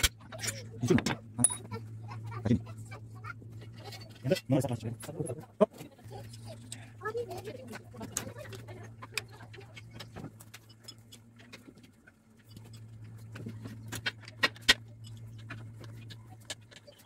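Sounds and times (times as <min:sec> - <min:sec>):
steady low hum: 0:00.0 - 0:17.0
metal tools clinking on engine: 0:00.3 - 0:01.8.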